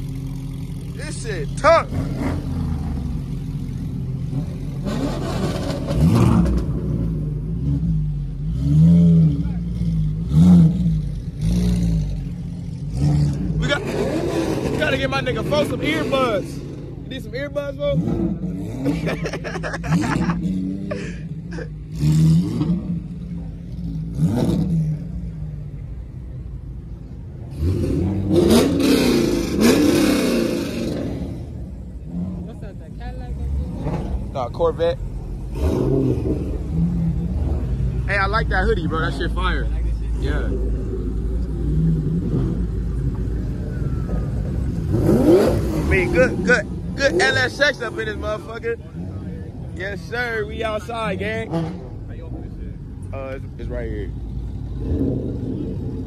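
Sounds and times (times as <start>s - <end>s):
engine revving: 0.0s - 25.6s, 27.4s - 56.0s
car engines idling: 0.0s - 56.0s.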